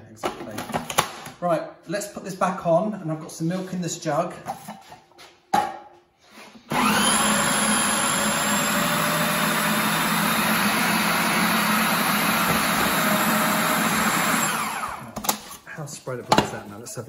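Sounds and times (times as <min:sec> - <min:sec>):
food processor motor running: 0:06.7 - 0:15.2.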